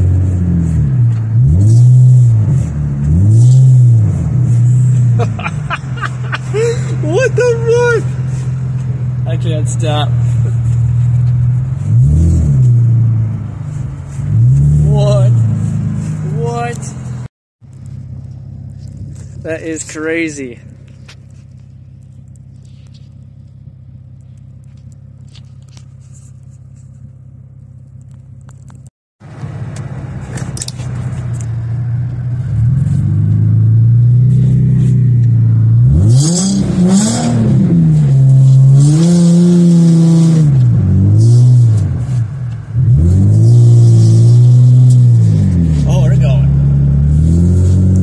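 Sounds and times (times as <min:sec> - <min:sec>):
car engine revving: 0:00.0 - 0:17.3, 0:29.3 - 0:48.0.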